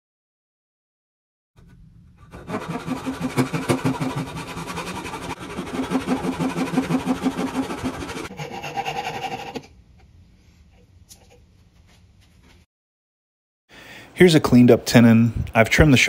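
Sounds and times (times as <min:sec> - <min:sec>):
handsaw cutting wood: 0:02.2 - 0:09.7.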